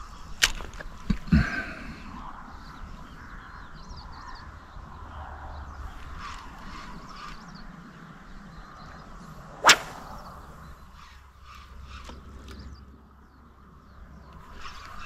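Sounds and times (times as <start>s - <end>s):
fishing rod whoosh: 9.6s - 10.6s.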